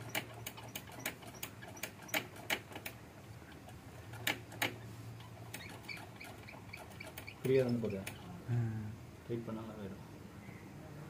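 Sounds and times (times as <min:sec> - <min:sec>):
low steady hum: 0:07.2 - 0:11.0.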